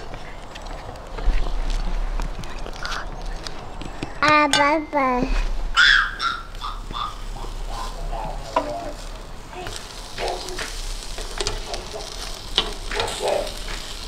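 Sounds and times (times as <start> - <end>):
meat sizzling on hot pan: 5.9 - 14.0
metal skewers clicking: 7.5 - 14.0.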